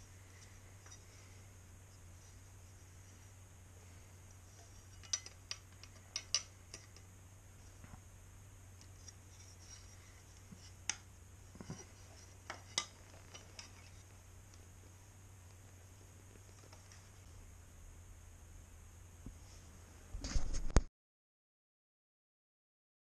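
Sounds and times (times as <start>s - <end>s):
faint steady hum: 0.0s - 20.9s
metallic clicks and taps: 5.0s - 7.1s.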